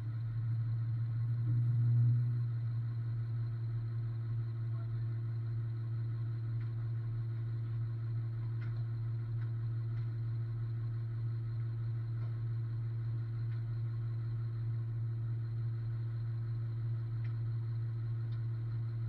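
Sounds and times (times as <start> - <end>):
truck engine idling: 0.0 - 19.0
faint ticks: 6.4 - 10.8, 11.5 - 14.6, 16.1 - 19.0.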